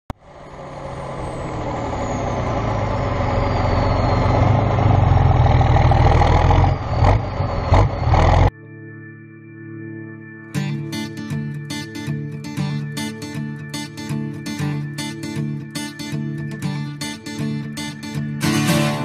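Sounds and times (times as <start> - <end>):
heavy diesel engine running: 0.1 - 8.5.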